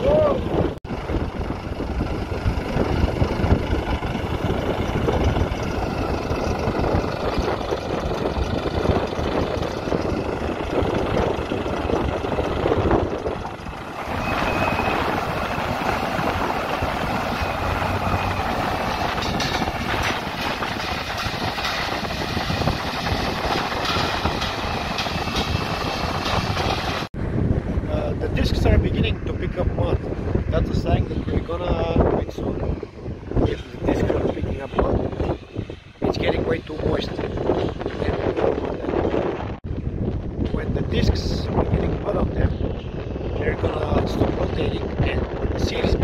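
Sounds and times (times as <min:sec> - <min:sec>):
tractor engine running: 0:00.4 - 0:27.4.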